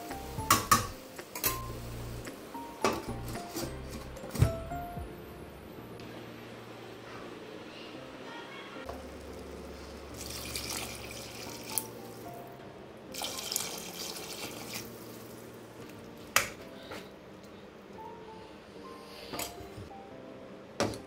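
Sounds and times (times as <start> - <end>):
soft background music: 0.0 - 21.0
water pouring and splashing on food: 9.0 - 12.3, 13.1 - 15.9.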